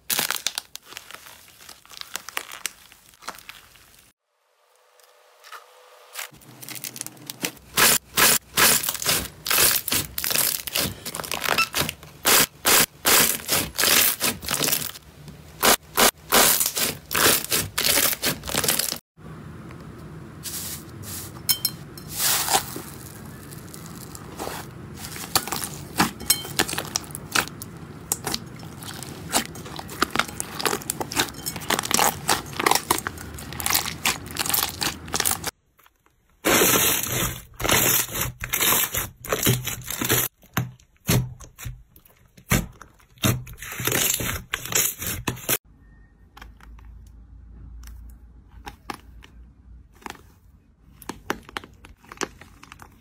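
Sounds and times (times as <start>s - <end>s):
slime squishing: 6.4s - 15.0s, 22.1s - 35.6s, 47.8s - 53.0s.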